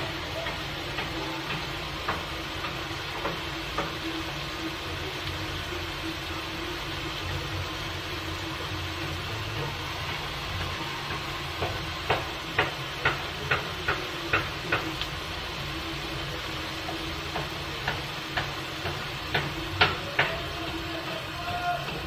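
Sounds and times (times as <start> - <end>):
prawns sizzling in hot oil: 0.0 - 22.0
sharp pops of spattering oil: 10.6 - 15.2.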